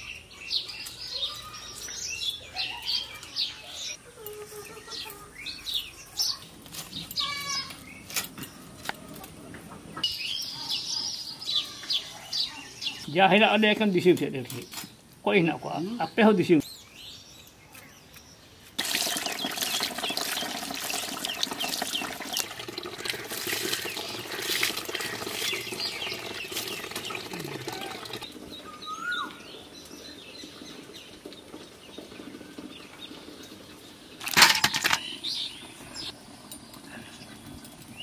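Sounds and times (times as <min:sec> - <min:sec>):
birds chirping: 0:00.0 - 0:38.0
water splashing in a metal bowl: 0:18.8 - 0:28.6, 0:34.2 - 0:35.2.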